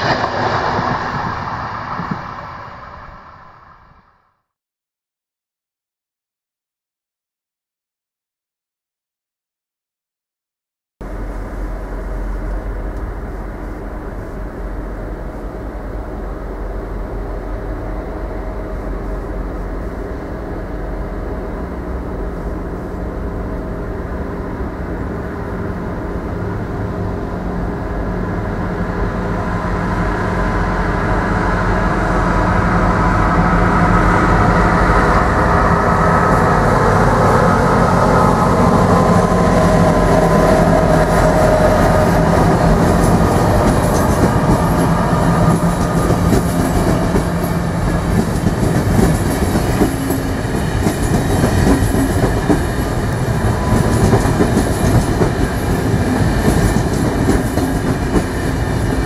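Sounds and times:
electric train passing: 0:00.0 - 0:04.4, 0:11.0 - 0:59.0
coaches rolling on track: 0:38.4 - 0:59.0.

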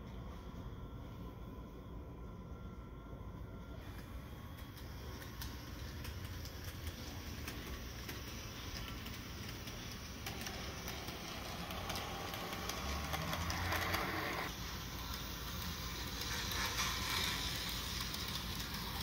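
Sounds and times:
model train rumbling: 0:03.8 - 0:19.0
wheels clicking on rails: 0:03.9 - 0:19.0.

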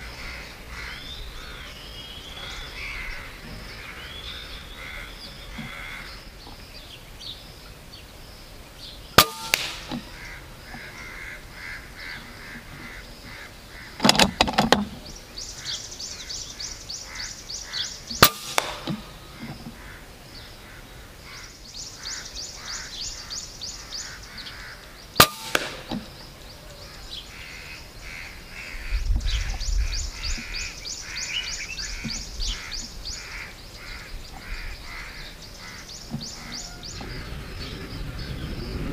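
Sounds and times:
crows cawing: 0:00.0 - 0:06.2, 0:09.7 - 0:14.6, 0:15.6 - 0:25.0, 0:26.6 - 0:38.0
air rifle shot crack: 0:09.2 - 0:10.4, 0:18.2 - 0:19.3, 0:25.2 - 0:26.1
slug impact smack: 0:18.2 - 0:19.1.

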